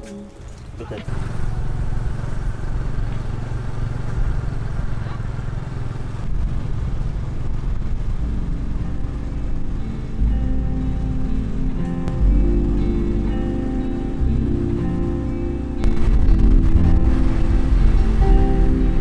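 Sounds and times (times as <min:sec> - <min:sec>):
scooter engine running: 0:00.3 - 0:10.1.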